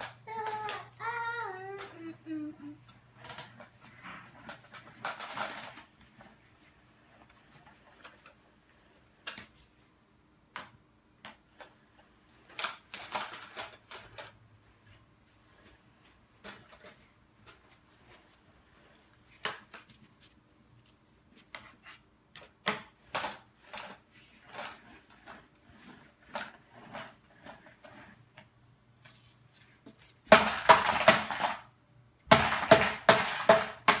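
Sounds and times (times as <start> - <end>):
plastic bricks knocking in tray: 30.2 - 31.7, 32.3 - 34.0.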